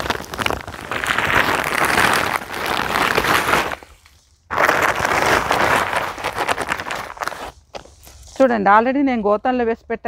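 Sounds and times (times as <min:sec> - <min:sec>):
leaves pouring out of sack: 0:00.0 - 0:08.5.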